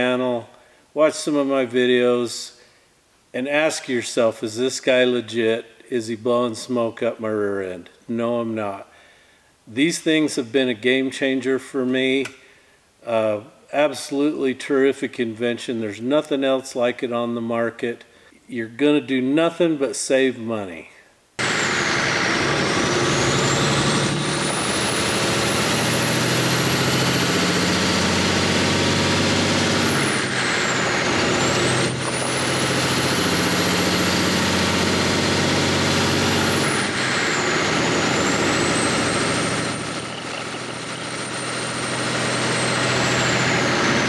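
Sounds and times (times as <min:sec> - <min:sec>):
diesel engine running: 0:21.4 - 0:44.0.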